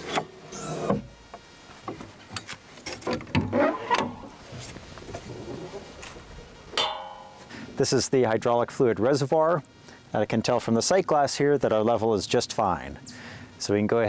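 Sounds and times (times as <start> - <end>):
engine cover lifting: 2.9 - 5.8.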